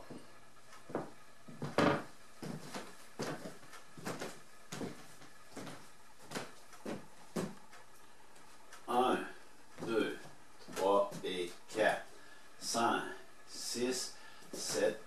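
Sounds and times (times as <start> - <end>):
footsteps on wooden floor: 0.0 - 8.8, 9.8 - 11.4.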